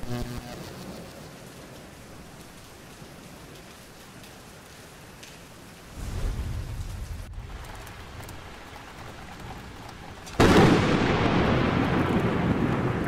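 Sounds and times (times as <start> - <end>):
rain hiss: 0.0 - 13.0
thunder rolling: 5.9 - 13.0
loud thunderclap: 6.0 - 8.2, 10.4 - 13.0.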